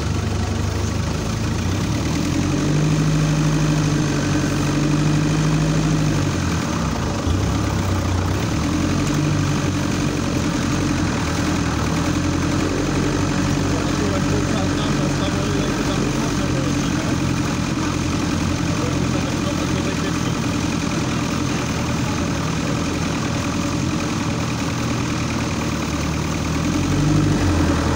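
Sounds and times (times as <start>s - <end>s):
off-road vehicle engine running: 0.0s - 27.9s.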